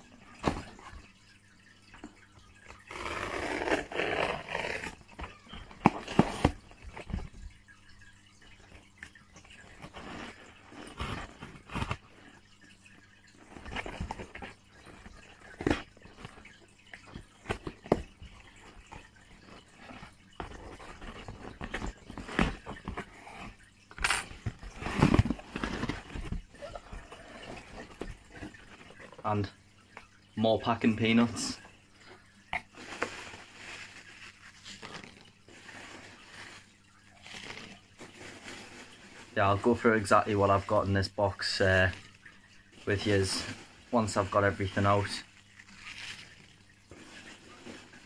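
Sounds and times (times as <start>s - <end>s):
cardboard and tape rustling: 0.4s - 1.0s, 2.8s - 7.5s, 9.6s - 12.1s, 13.4s - 29.5s, 32.5s - 40.8s.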